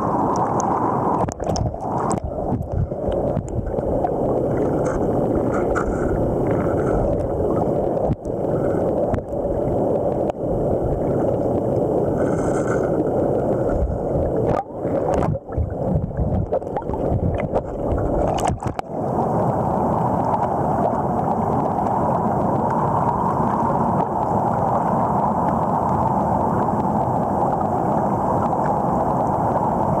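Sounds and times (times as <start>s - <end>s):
muffled underwater river rush: 0.0s - 30.0s
handling knocks and gurgles: 0.6s - 3.9s, 4.5s - 7.4s, 13.6s - 18.9s.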